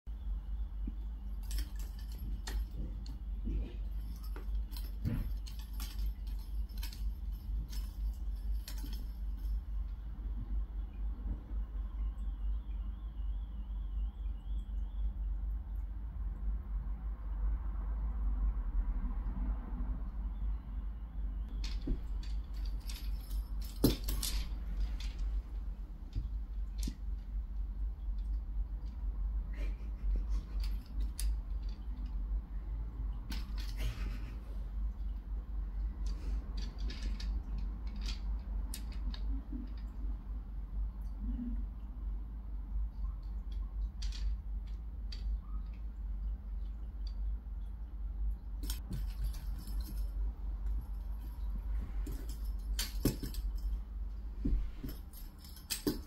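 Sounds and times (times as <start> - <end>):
steady low hum: 0.1 - 56.0
wooden beads clicking and rattling: 0.7 - 10.5, 21.5 - 40.3, 43.2 - 47.4, 48.6 - 56.0.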